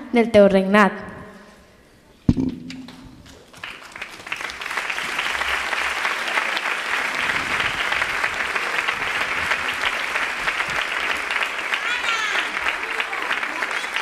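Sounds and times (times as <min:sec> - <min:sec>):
audience applauding: 0:03.3 - 0:14.0.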